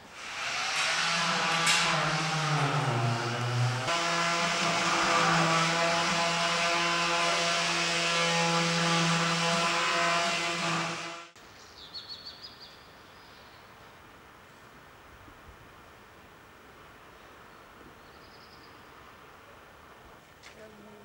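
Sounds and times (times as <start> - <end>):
loud drone of held tones: 0.2 - 11.4.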